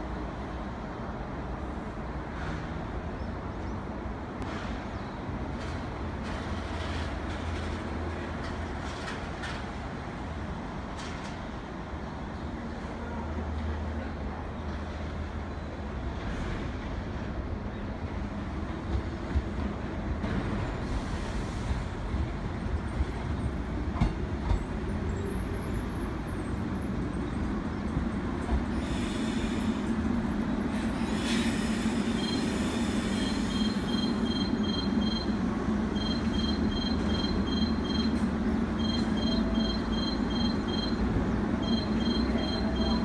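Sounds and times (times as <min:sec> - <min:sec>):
electric train rolling: 0:18.4 - 0:43.0
electronic beeping: 0:33.6 - 0:35.4, 0:36.0 - 0:38.2, 0:38.8 - 0:41.0, 0:41.6 - 0:43.0.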